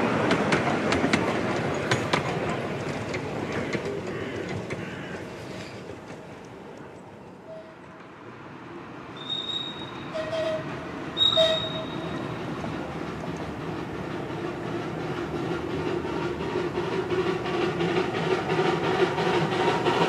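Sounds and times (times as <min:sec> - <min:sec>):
wheels rumbling on rail: 0:00.0 - 0:20.0
train wheel squeals: 0:09.2 - 0:12.5.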